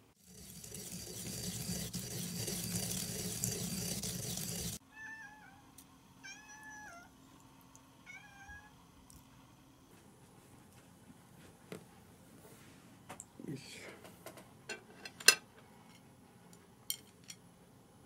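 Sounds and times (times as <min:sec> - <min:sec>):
cat meowing: 0:06.2 - 0:07.1.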